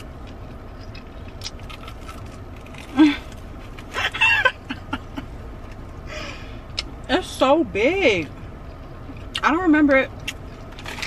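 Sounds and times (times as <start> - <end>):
crunchy chewing: 0.0 - 4.0
car air conditioning blowing: 0.0 - 11.0.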